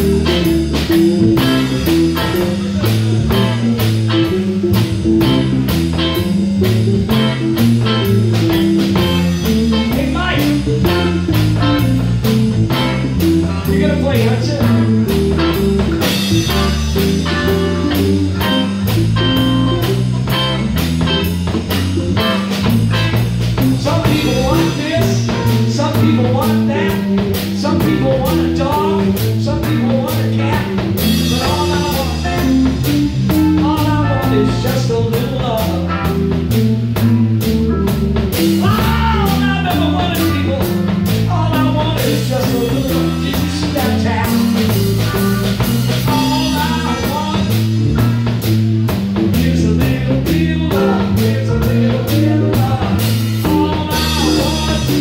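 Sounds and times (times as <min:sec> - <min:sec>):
lead guitar bent notes: 0:00.0 - 0:34.9
drum kit: 0:00.0 - 0:55.0
electric bass: 0:00.0 - 0:55.0
electric guitars: 0:00.0 - 0:55.0
organ: 0:00.0 - 0:55.0.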